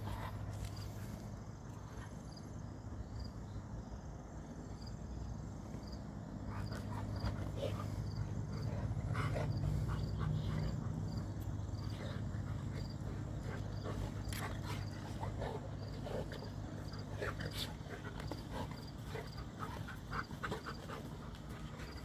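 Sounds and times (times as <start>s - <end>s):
steady low hum: 0.0s - 22.0s
dogs growling and grunting: 6.3s - 22.0s.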